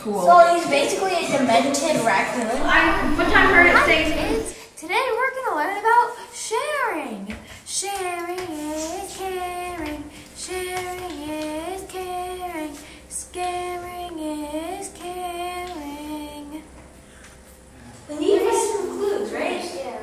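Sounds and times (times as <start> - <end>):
child singing: 7.7 - 16.6.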